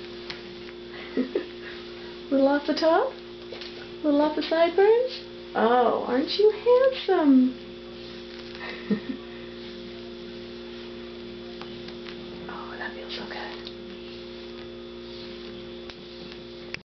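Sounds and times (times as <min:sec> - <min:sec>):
electrical hum: 0:00.0 - 0:16.8
brush rustling through fur: 0:07.9 - 0:08.6, 0:13.5 - 0:16.4.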